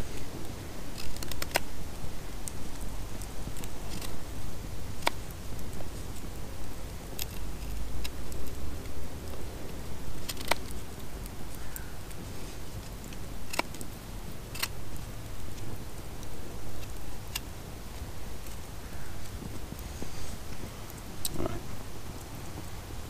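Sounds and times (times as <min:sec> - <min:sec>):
knife carving wood: 0:00.9 - 0:01.7, 0:03.4 - 0:04.2, 0:14.5 - 0:14.8.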